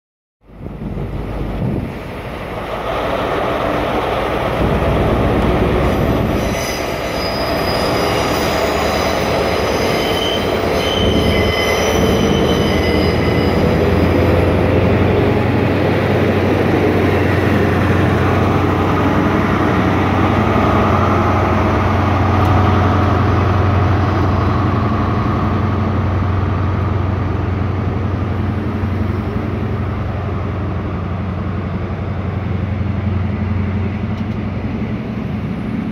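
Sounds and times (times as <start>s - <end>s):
diesel train rumbling past: 0.4s - 35.9s
high wheel squeals: 5.9s - 14.5s.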